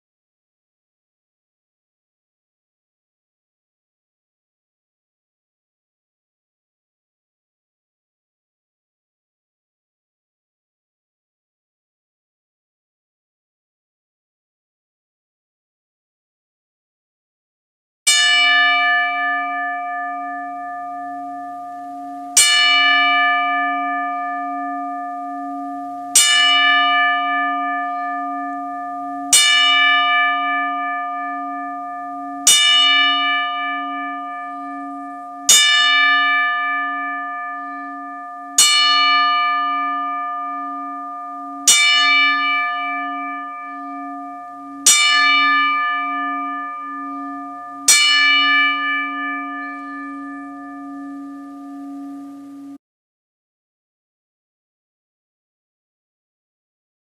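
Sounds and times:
large bell tolling: 18.1 - 52.8.

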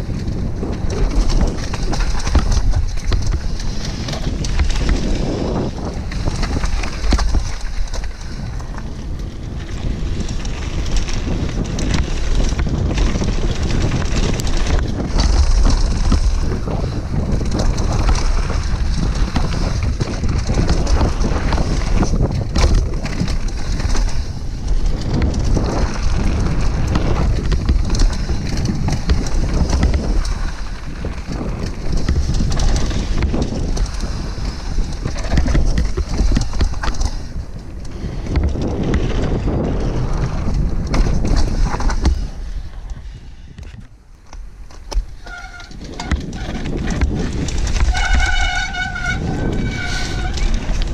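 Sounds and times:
tyres crunching on gravel: 0.0 - 43.1, 43.8 - 50.9
bike rattling and knocking: 0.0 - 50.9
wind buffeting microphone: 0.0 - 50.9.

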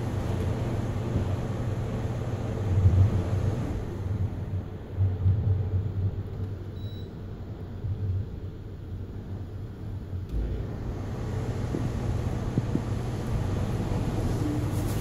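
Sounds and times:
faint high beep: 6.8 - 7.2.

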